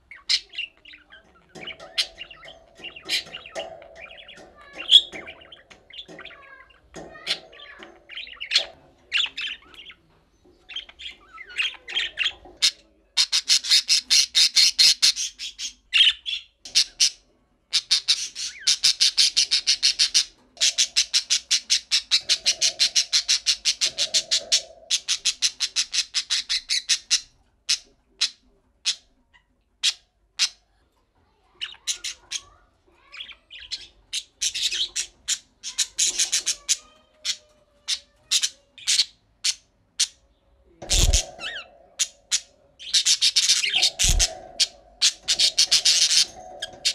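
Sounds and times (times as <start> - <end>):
budgerigars calling: 0.1 - 10.1, 40.8 - 46.9.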